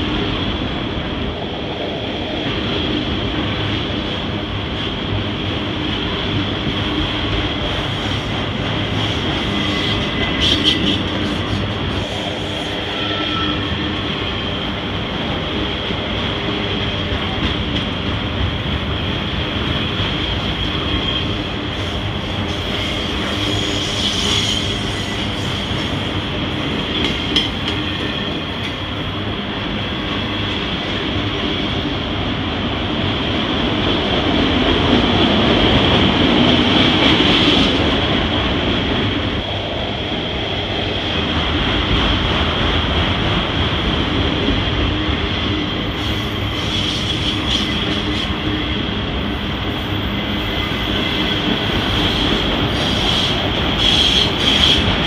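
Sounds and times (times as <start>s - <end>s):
train wheels rumbling on rail: 0.0s - 55.0s
high wheel squeal: 9.2s - 14.5s, 20.4s - 26.0s.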